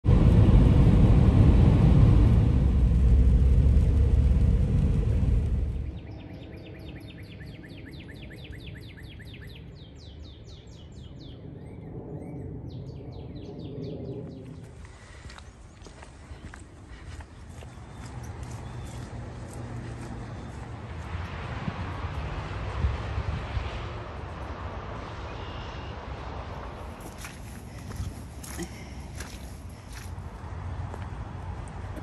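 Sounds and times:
loud low rumble: 0.0 - 6.5
songbird singing: 5.7 - 20.8, 25.0 - 26.0.

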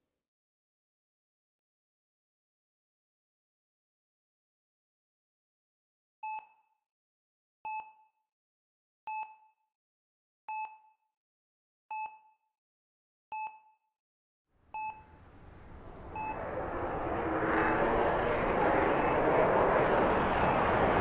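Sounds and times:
rush of noise: 15.1 - 21.0.

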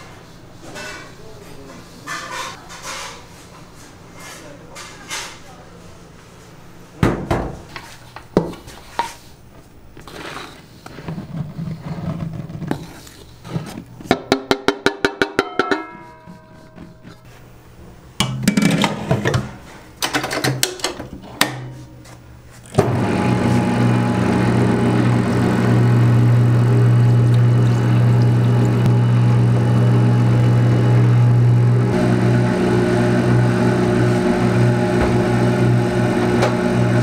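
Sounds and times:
dough knocking and clattering: 14.0 - 17.0
machine motor humming: 22.8 - 37.0.

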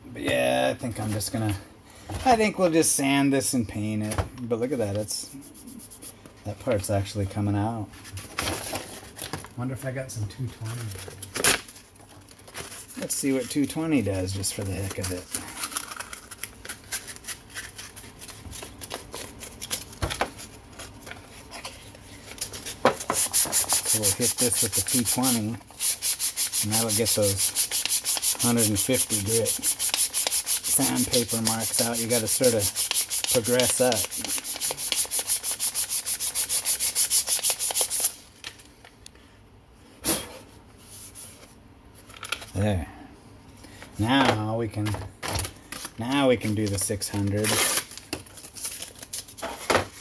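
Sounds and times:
sandpaper crinkling: 22.5 - 38.2.

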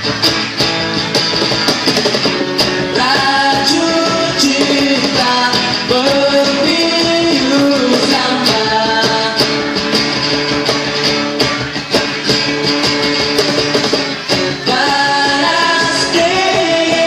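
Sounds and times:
cajon hits: 0.0 - 6.3, 7.8 - 17.0
strummed acoustic guitars: 0.0 - 17.0
men singing: 2.9 - 9.5, 14.6 - 17.0.

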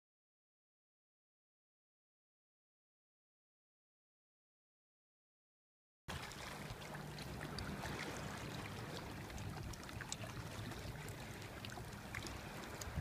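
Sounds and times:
sea water washing on rocks: 6.1 - 13.0
faint ticks: 9.3 - 13.0.

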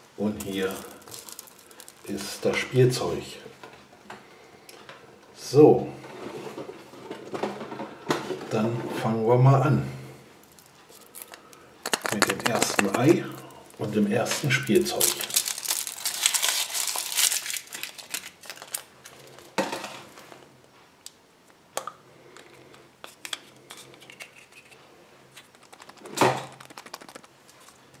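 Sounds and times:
foil wrapper crinkling: 0.5 - 2.5, 10.4 - 19.5, 25.3 - 27.9
chocolate shell cracking: 0.7 - 2.2, 10.5 - 18.9, 25.4 - 27.8.

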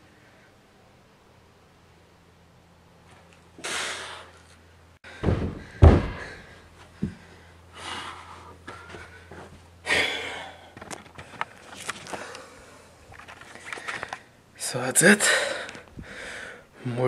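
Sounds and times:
dumbbell thudding on floor: 5.1 - 6.4.

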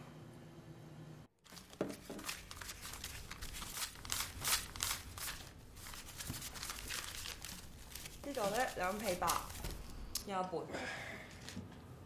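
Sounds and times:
paper banknotes rustling: 1.4 - 10.2.

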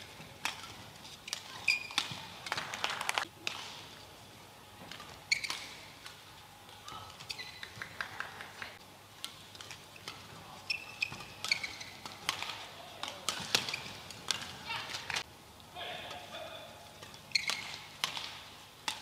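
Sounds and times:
court shoes squeaking: 0.0 - 2.8, 4.8 - 8.3, 9.2 - 15.2, 16.9 - 19.0
racket striking shuttlecock: 17.4 - 19.0.

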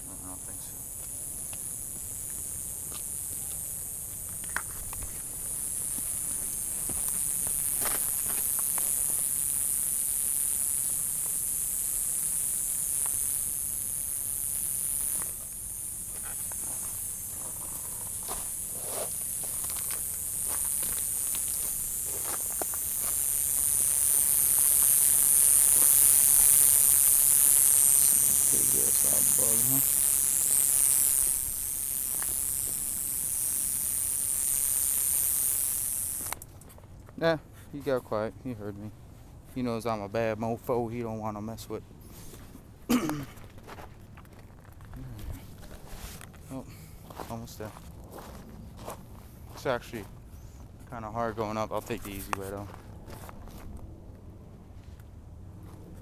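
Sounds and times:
animal high-pitched buzzing hiss: 0.0 - 36.4
footsteps on rocky ground: 4.1 - 9.2, 16.2 - 24.9, 43.4 - 46.4, 47.0 - 50.1, 51.9 - 53.8.

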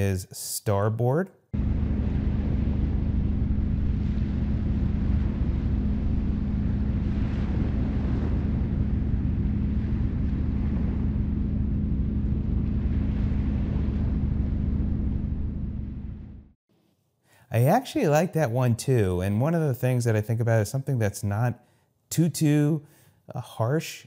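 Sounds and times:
low droning hum: 1.6 - 16.6.

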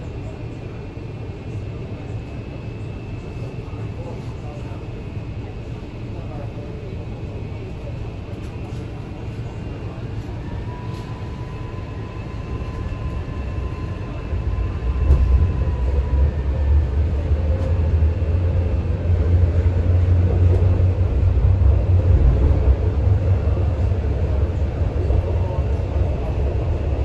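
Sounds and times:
train wheels rumbling: 10.6 - 27.0.

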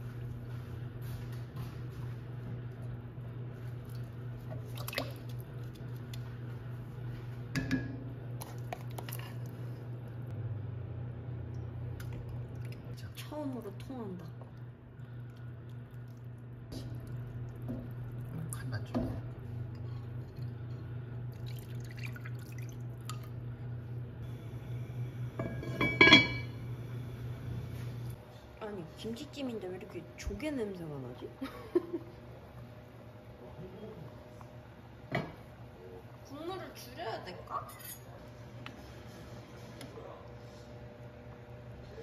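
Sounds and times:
steady low hum: 0.0 - 42.0
liquid pouring and splashing: 3.8 - 6.2, 21.3 - 23.3.

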